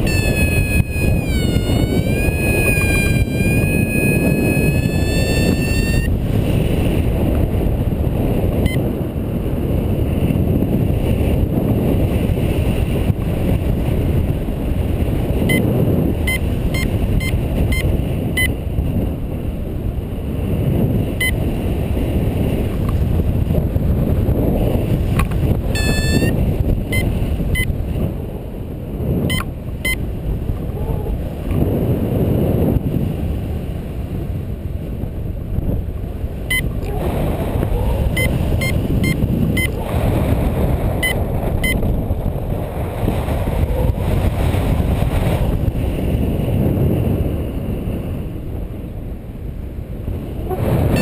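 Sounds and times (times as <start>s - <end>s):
rising electronic tone: 0.0s - 6.1s
short high electronic beeps: 0.0s - 6.1s, 25.8s - 27.7s
wind rushing over microphone: 0.0s - 51.0s.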